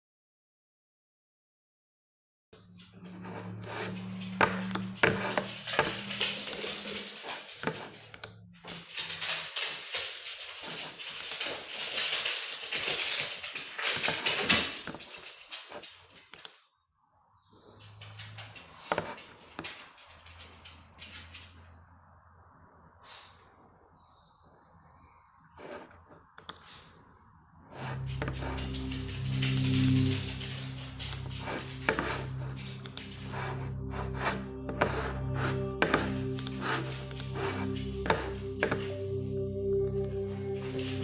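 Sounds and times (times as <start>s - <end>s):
low hum: 2.6s - 13.6s, 27.4s - 41.0s.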